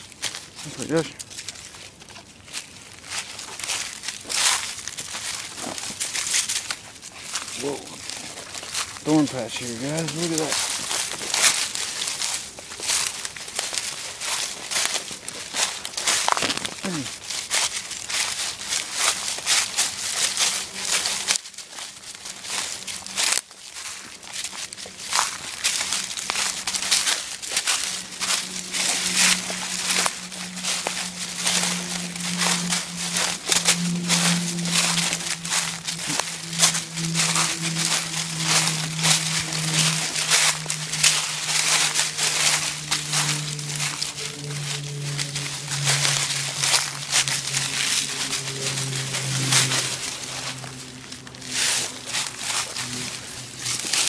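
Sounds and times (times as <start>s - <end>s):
footsteps through dry leaves: 0.0s - 54.0s
steady low hum: 24.8s - 54.0s.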